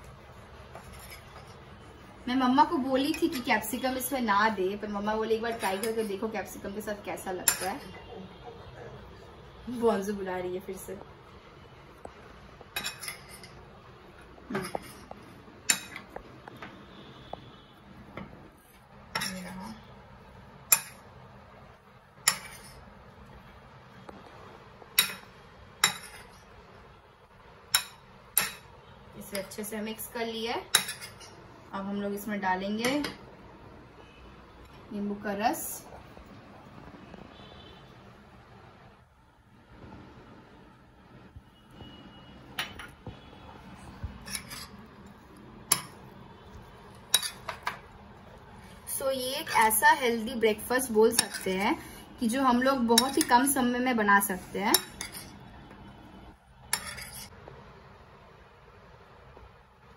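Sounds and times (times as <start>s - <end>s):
spoon stirring salad in ceramic bowl: 0.4s - 2.0s, 12.0s - 16.7s, 22.2s - 23.4s, 24.0s - 26.6s, 30.7s - 31.4s, 42.6s - 49.8s, 50.8s - 51.9s, 52.6s - 53.6s, 54.3s - 55.8s, 56.6s - 57.4s
metal spoon clinking on bowl: 7.4s - 7.9s, 12.8s - 13.6s, 19.1s - 19.6s, 25.0s - 26.4s, 30.7s - 31.3s, 45.7s - 46.0s, 47.0s - 47.8s, 51.1s - 51.6s, 53.0s - 53.4s, 54.7s - 55.3s, 56.7s - 57.3s.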